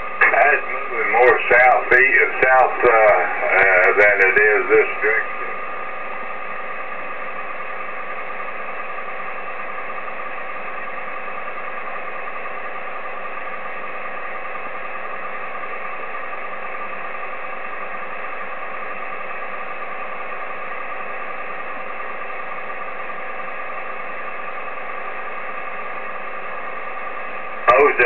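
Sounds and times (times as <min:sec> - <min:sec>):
radio static hiss: 0:00.0 - 0:05.8, 0:27.6 - 0:28.0
steady whining tones: 0:00.0 - 0:28.0.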